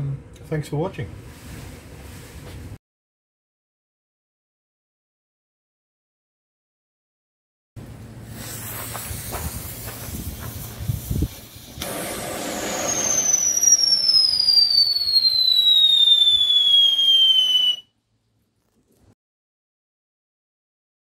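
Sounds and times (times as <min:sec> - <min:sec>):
hissing and crackling: 0:08.2 - 0:14.3
shrill whistle falling in pitch: 0:12.4 - 0:17.9.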